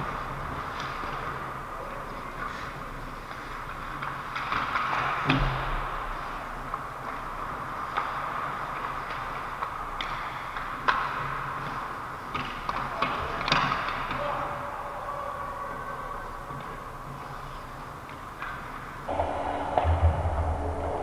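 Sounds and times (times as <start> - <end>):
skates scraping on ice: 0.0 - 14.3
hockey sticks and puck clacking: 0.0 - 19.1.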